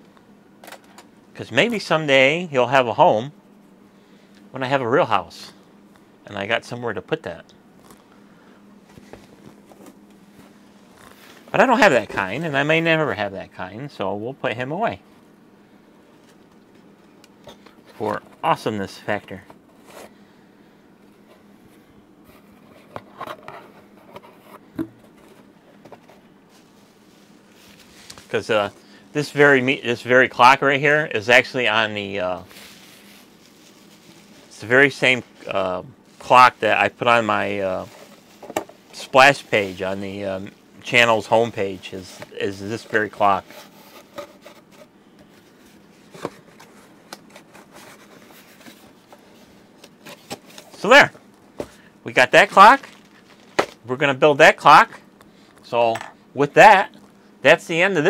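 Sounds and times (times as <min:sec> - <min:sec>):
cardboard and bubble wrap rustling: 0:25.9 - 0:28.4, 0:32.4 - 0:50.9, 0:52.4 - 0:53.8.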